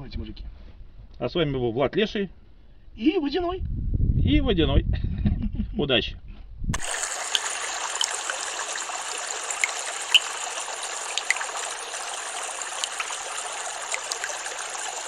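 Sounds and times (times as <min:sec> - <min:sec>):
flowing water rushing: 0:06.8 - 0:15.0
small water plinks: 0:06.8 - 0:15.0.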